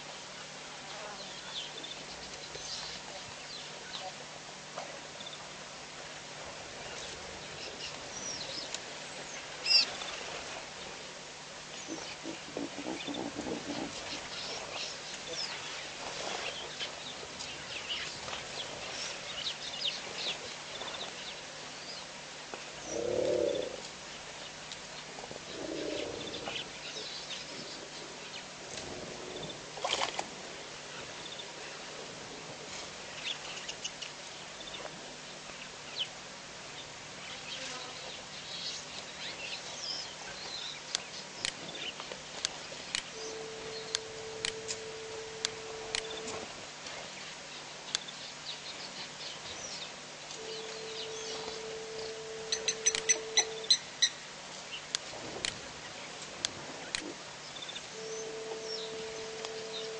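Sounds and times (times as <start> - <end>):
outdoor hiss: 0.0 - 59.9
birds chirping: 0.3 - 4.2, 6.8 - 10.2, 11.7 - 28.5, 36.8 - 55.0, 56.8 - 59.9
low animal calls: 11.8 - 15.7, 22.8 - 23.9, 25.4 - 27.6, 43.1 - 46.5, 50.4 - 54.2, 57.9 - 59.9.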